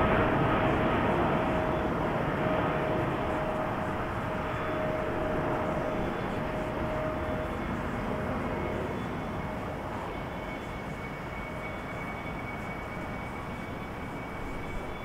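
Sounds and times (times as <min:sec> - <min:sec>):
jet engine roar with whine: 0:00.0 - 0:15.0.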